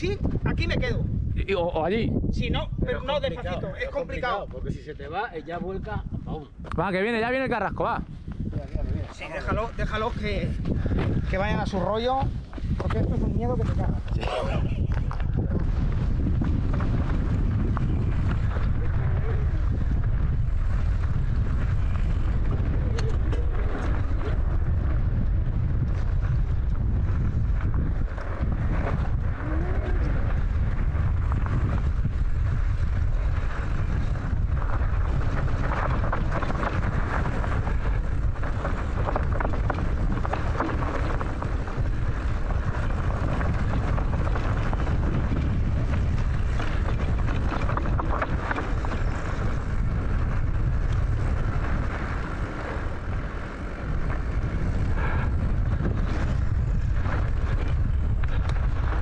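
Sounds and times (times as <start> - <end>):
wind rumble on microphone: 0.0 - 59.0.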